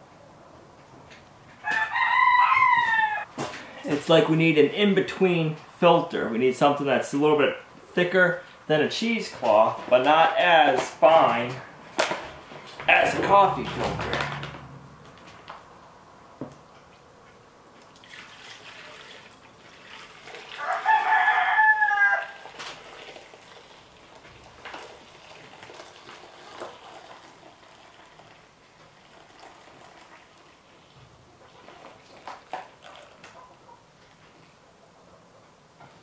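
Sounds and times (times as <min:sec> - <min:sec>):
rooster crowing: 0:01.6 - 0:03.3, 0:20.6 - 0:22.5.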